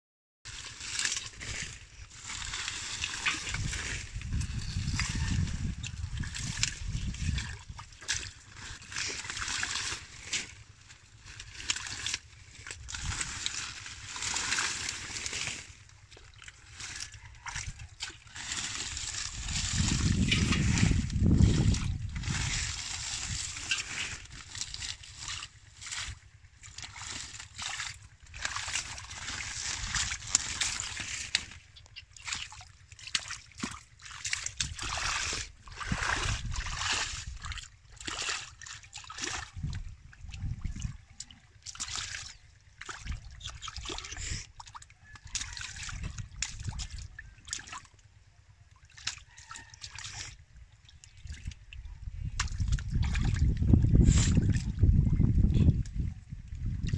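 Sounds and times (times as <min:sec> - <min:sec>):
hands splashing in muddy water: 0:00.5 - 0:48.1, 0:48.8 - 0:56.0
heavy low rumble: 0:01.3 - 0:31.9.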